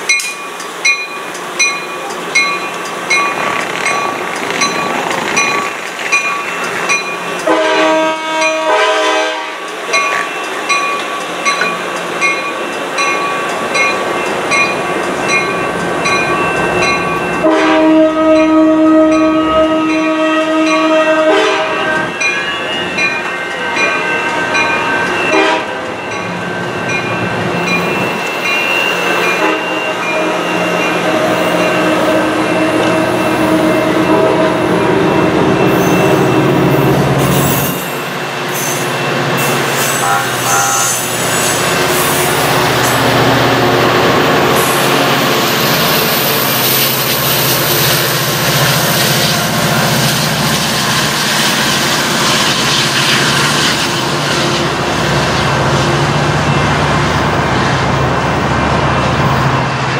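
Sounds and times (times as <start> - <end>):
train wheels on rail: 0.0 - 59.9
long train horn blast: 7.4 - 9.7, 17.4 - 22.2, 23.6 - 25.9, 29.4 - 35.0, 39.8 - 42.7.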